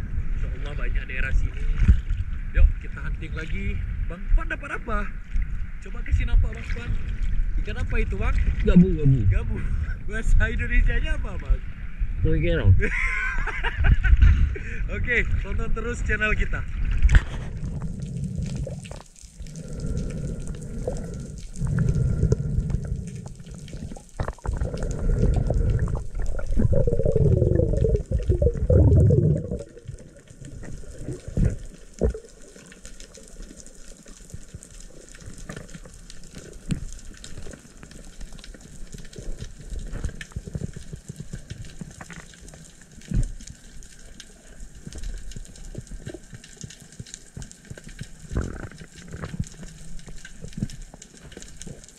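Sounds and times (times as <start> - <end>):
underwater water rushing and bubbling: 5.1 - 10.5, 15.1 - 51.9
gurgling bubbles: 6.6 - 10.0, 16.6 - 51.9
small clicks underwater: 16.8 - 51.9.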